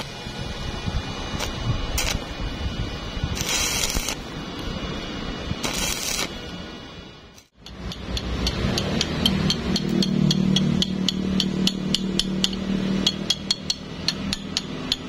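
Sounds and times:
welding arc crackling and sizzling: 0.0s - 10.9s.

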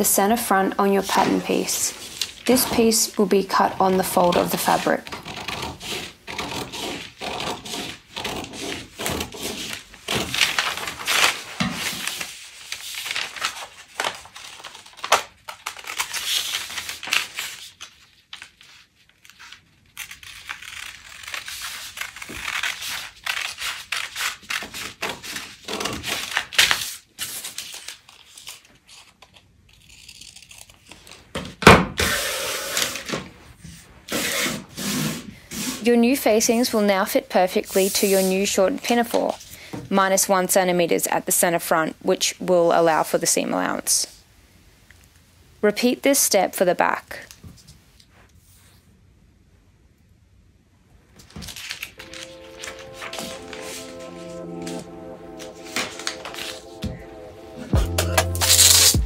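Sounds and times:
paper rustling and crinkling: 1.0s - 31.4s, 51.2s - 57.1s
scissors snipping paper: 2.1s - 17.6s, 19.3s - 31.2s.

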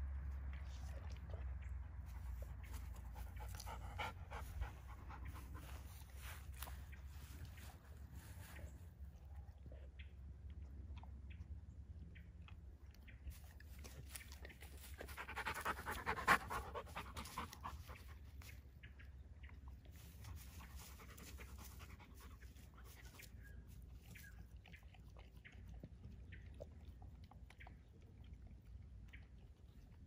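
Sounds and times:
wet chewing and licking: 0.3s - 30.0s
dog panting: 2.0s - 8.6s, 14.1s - 18.5s, 20.0s - 23.3s.

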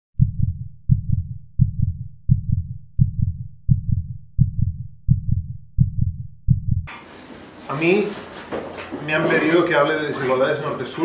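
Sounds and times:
heartbeat double beats: 0.2s - 6.9s.

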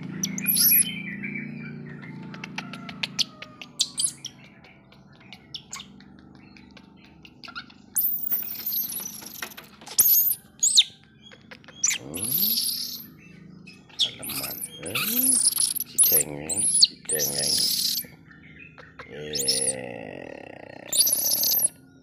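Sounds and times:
baby monkey squeaking: 0.2s - 0.9s, 2.5s - 4.4s, 5.3s - 6.0s, 6.7s - 13.1s, 13.7s - 18.2s, 20.9s - 21.8s.

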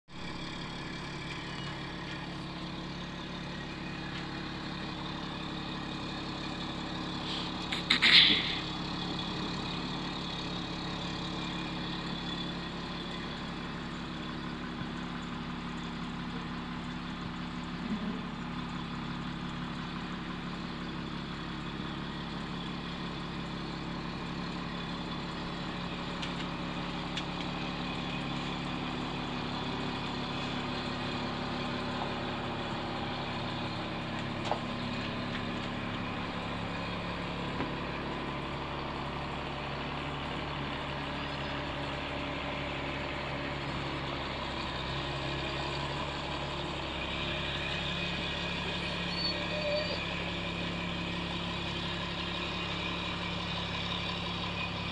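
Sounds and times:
distant engine running: 0.1s - 54.9s.

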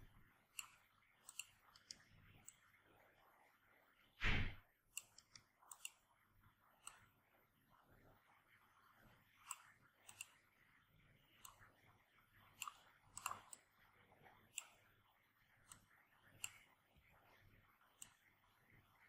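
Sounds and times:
computer mouse clicking: 0.0s - 2.9s, 4.9s - 7.2s, 8.9s - 10.6s, 11.3s - 19.0s.

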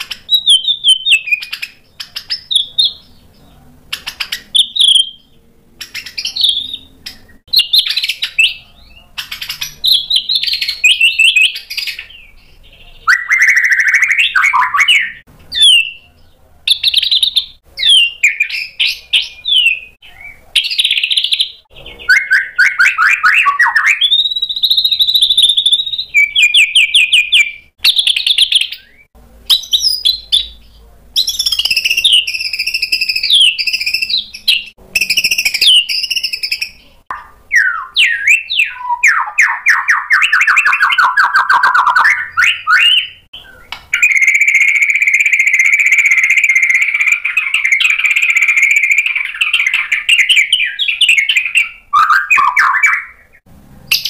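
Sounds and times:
songbird whistles and trills: 0.0s - 3.2s, 3.9s - 30.6s, 31.2s - 54.0s.

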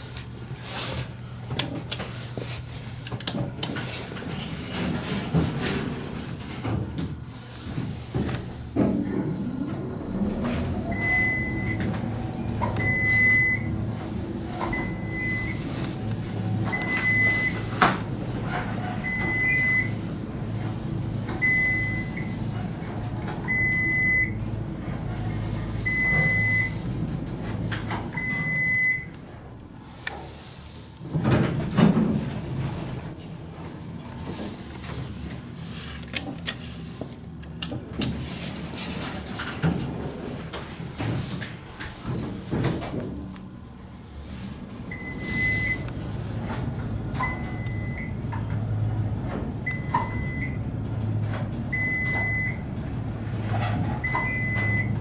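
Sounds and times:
elevator hum: 0.0s - 55.0s
elevator doors clunking open: 7.8s - 29.6s, 31.0s - 35.3s, 44.6s - 55.0s.

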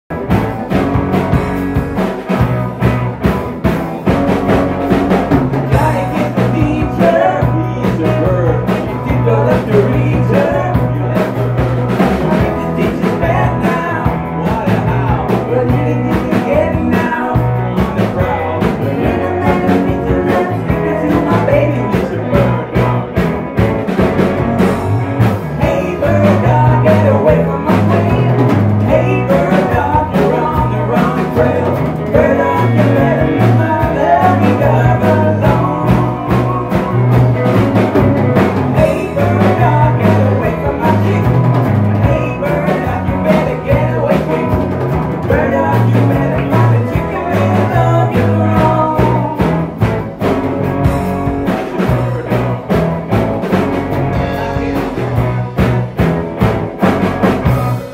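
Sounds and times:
bass line: 0.0s - 57.9s
drum kit: 0.0s - 57.9s
guitars: 0.0s - 57.9s
man and woman singing: 5.7s - 23.2s, 25.5s - 49.8s.

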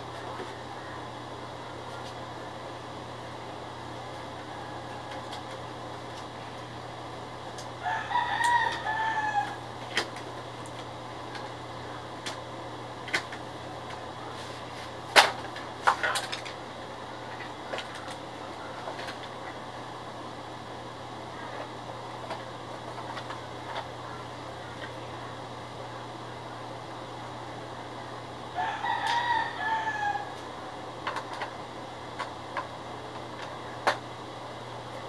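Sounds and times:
background hum: 0.0s - 35.0s
rooster crowing: 4.3s - 5.7s, 7.8s - 9.7s, 28.5s - 30.5s.

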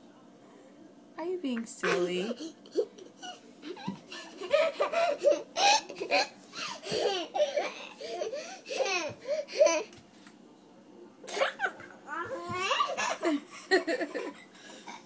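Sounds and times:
boy giggling: 1.8s - 9.9s.

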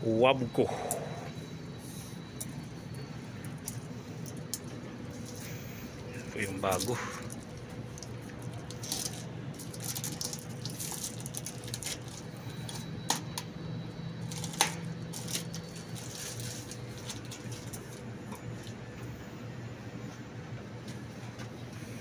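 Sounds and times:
plastic wrapping crinkling: 6.2s - 12.8s, 14.2s - 18.8s.

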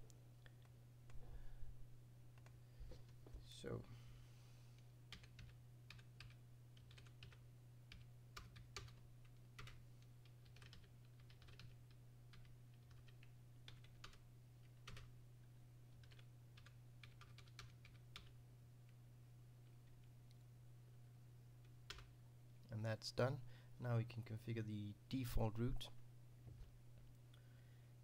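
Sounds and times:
steady low hum: 0.0s - 28.0s
typing on a keyboard: 5.1s - 15.1s, 16.0s - 18.4s, 21.9s - 22.1s.

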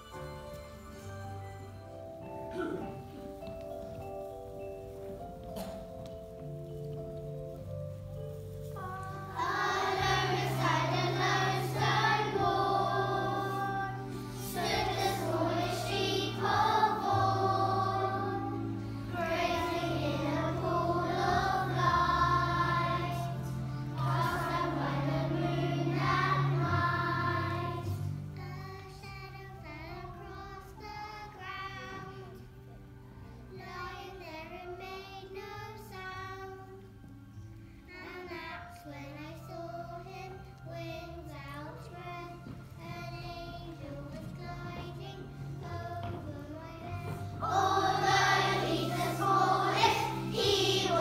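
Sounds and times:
instrumental accompaniment: 0.0s - 51.0s
children's choir singing: 2.4s - 3.6s, 8.4s - 32.8s, 37.9s - 51.0s.

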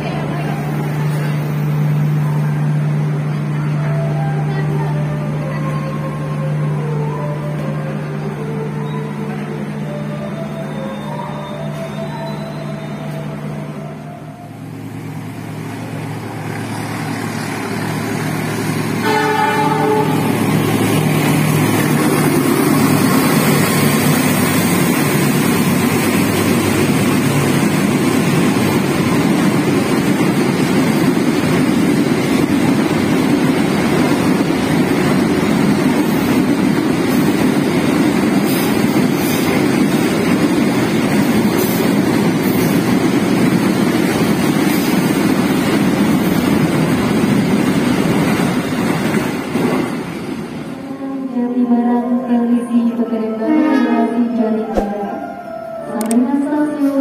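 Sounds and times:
locomotive engine hum: 0.0s - 51.0s
train horn blast: 19.0s - 20.6s, 53.3s - 57.0s.

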